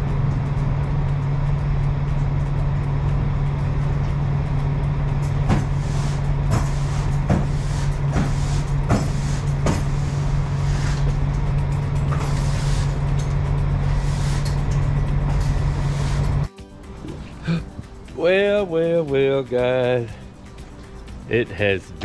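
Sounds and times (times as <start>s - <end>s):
low engine-like hum: 0.0s - 21.4s
push broom sweeping wooden floor: 5.5s - 11.2s, 12.0s - 16.5s.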